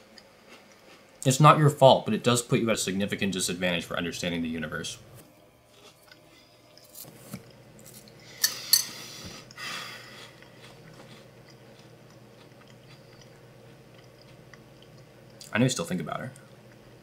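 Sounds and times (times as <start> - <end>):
cereal chewing: 5.7 - 8.2, 10.0 - 15.5.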